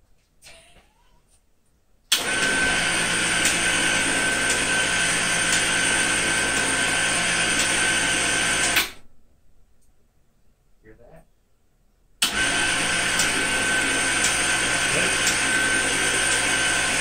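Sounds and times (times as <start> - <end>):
electric winch motor whining: 2.1 - 9.0, 12.2 - 17.0.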